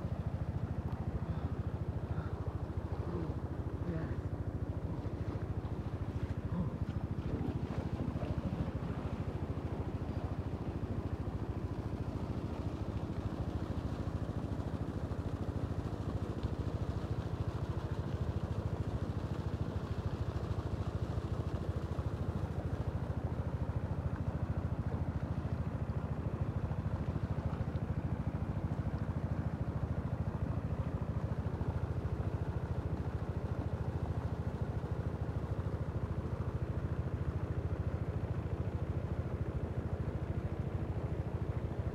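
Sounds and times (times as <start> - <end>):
small engine droning: 0.0 - 41.9.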